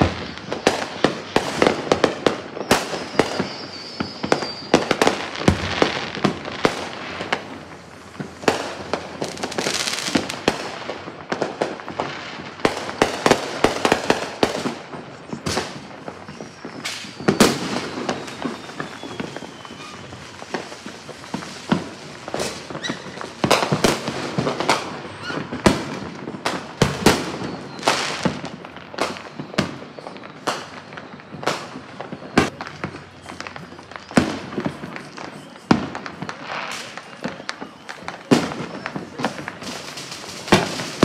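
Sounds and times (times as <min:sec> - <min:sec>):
firework whistle: 0:00.0 - 0:41.0
fireworks bangs and crackling: 0:00.0 - 0:41.0.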